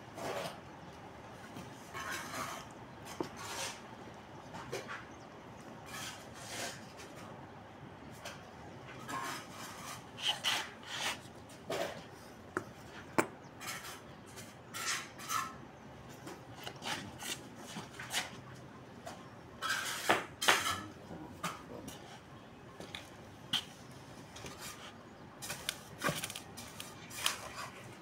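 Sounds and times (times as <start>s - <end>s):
trowel scraping mortar on brick: 1.9s - 3.8s, 5.8s - 7.1s, 9.1s - 15.6s, 16.5s - 18.4s, 19.6s - 22.0s.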